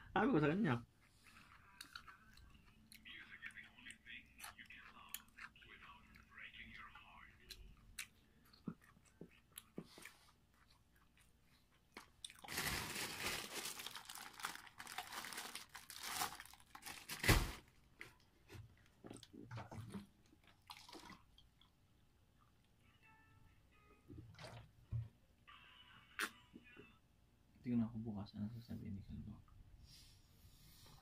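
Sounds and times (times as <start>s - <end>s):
crunchy chewing: 1.0s - 12.6s.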